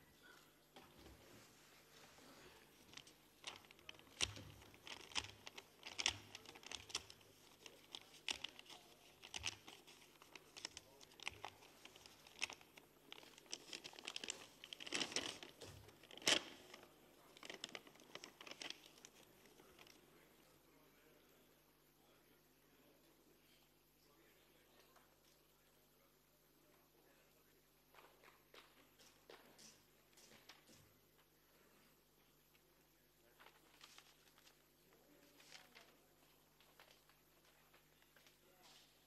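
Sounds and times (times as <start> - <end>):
paper rustling and crinkling: 0.8 - 20.0, 33.2 - 39.0.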